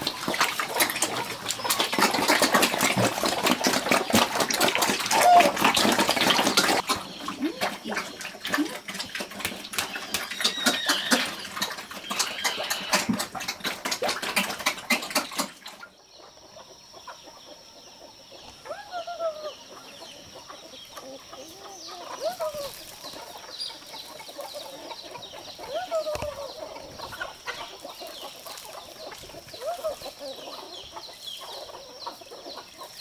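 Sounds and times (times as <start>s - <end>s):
pigs slurping slop: 0.0s - 15.9s
chickens clucking: 0.0s - 33.0s.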